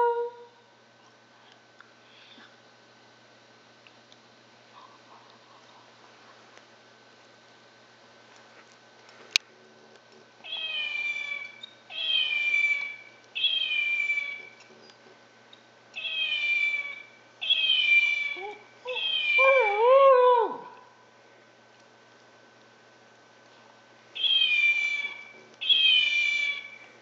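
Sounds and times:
dog howling: 0.0s - 0.5s, 17.5s - 20.9s
toy electronic meow: 10.5s - 14.4s, 16.0s - 19.5s, 24.2s - 26.8s.

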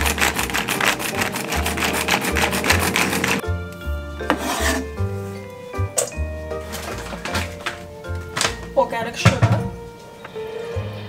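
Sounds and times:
food chopper blades rasping: 0.0s - 3.4s
background music with bass: 0.0s - 11.0s.

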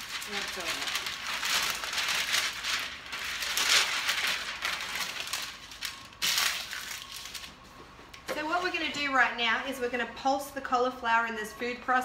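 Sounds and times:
parchment paper rustling: 0.0s - 8.9s.

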